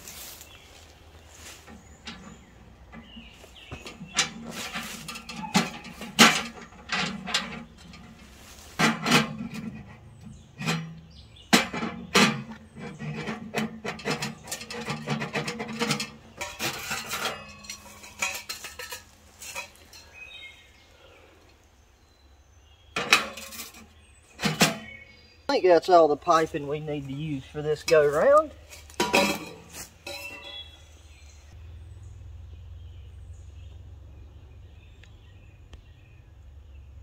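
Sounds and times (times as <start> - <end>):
metal parts clanking: 1.6 - 20.3, 23.0 - 24.9, 27.7 - 30.8.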